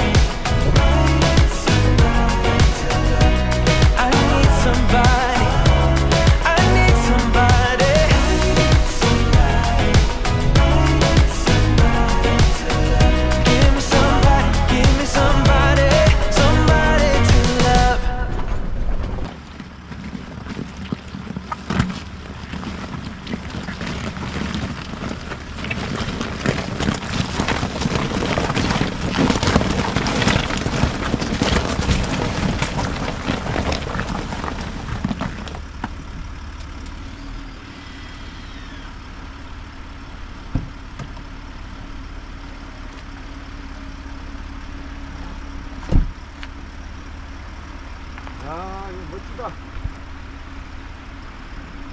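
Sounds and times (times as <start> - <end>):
engine hum: 0.0 - 51.9
tyres crunching on frozen ground: 0.0 - 51.9.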